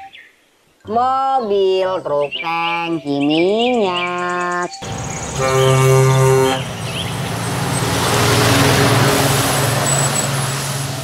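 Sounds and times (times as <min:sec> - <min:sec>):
truck driving past: 0:04.8 - 0:11.0
truck horn blast: 0:04.8 - 0:11.0.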